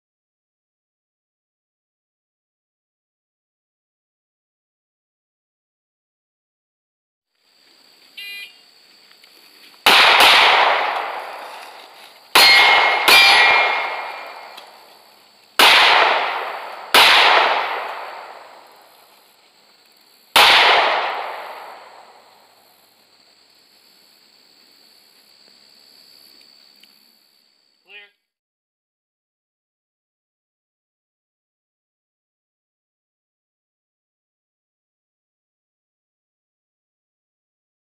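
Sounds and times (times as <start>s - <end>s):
handgun shots echoing: 9.9s - 11.6s, 12.4s - 14.8s, 15.6s - 18.6s, 20.4s - 22.2s.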